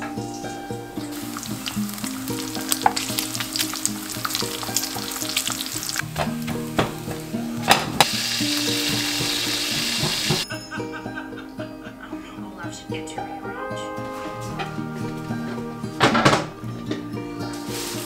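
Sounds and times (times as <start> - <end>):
metal tongs turning food: 1.1 - 6.8
bacon sizzling and popping: 1.1 - 10.4.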